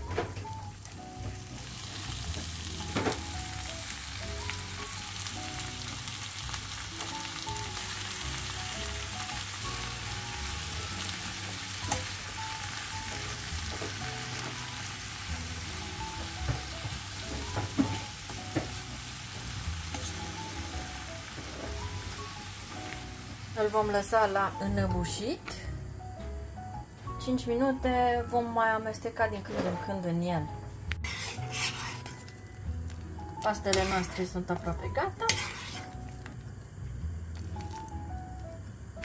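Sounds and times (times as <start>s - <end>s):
leaves sizzling in a frying pan: 0.0s - 25.4s, 30.9s - 39.0s
spatula tapping and scraping: 30.9s - 32.3s, 33.7s - 34.2s, 35.2s - 36.0s.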